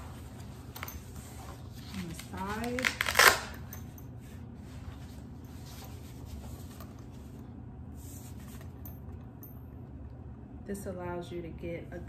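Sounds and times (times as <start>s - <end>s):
fabric rustling and rubbing: 0.0s - 3.3s, 4.2s - 8.8s
low room hum: 0.0s - 12.0s.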